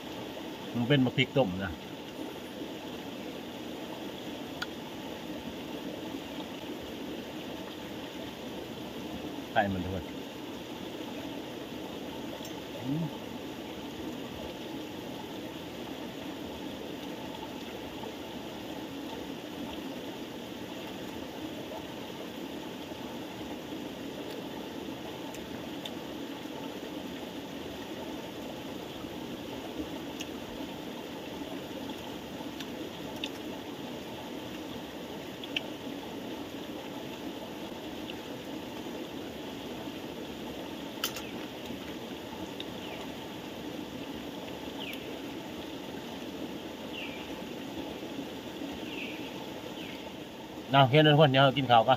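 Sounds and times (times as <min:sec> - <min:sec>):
flowing water: 0:00.0 - 0:51.9
faint clicks: 0:35.4 - 0:35.7, 0:41.0 - 0:42.0.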